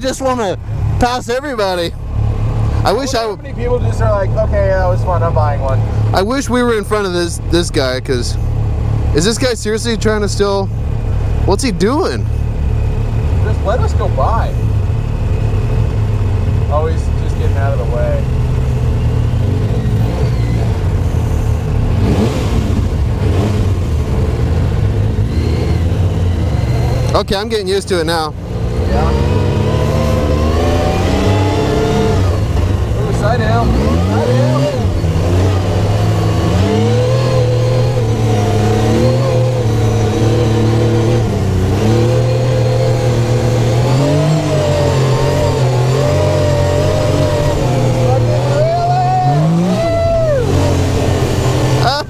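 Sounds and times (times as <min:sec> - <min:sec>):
vehicle engine running steadily: 0:00.0 - 0:52.0.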